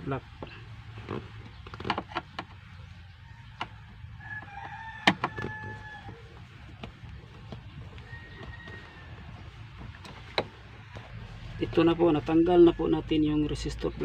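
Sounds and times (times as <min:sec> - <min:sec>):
rooster crowing: 0:03.1 - 0:06.4, 0:07.8 - 0:09.9, 0:11.3 - 0:13.4.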